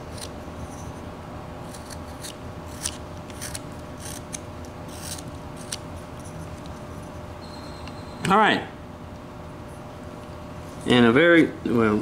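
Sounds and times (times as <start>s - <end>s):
knife cutting wood: 1.7s - 5.8s.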